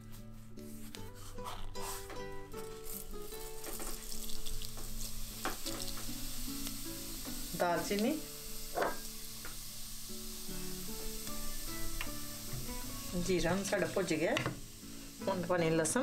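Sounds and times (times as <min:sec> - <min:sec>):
seeds sizzling in hot oil: 0:01.2 - 0:16.0.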